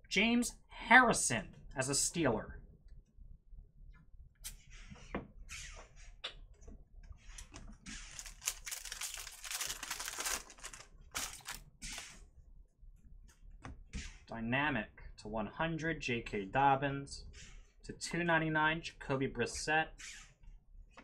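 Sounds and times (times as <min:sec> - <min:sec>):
cards rustling: 0:07.4 - 0:12.2
foil wrapper tearing and crinkling: 0:08.0 - 0:12.2.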